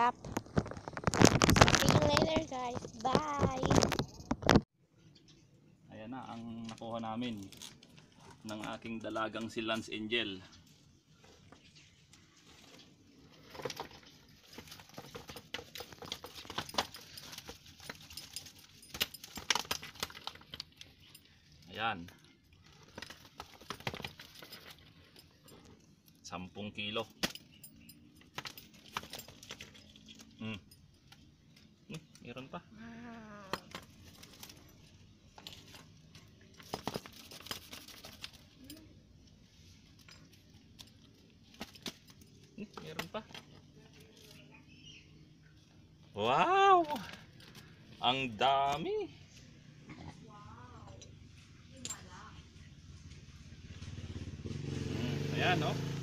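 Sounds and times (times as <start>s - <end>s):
bamboo basket being shaken: 0.0s - 4.7s, 13.4s - 20.8s, 36.5s - 38.8s.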